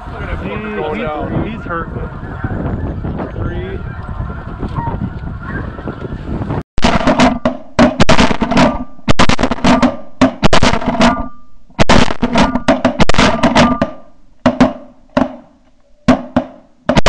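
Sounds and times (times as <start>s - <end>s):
snow goose calls: 0.0s - 6.3s
loud music with drum beat: 6.8s - 15.5s.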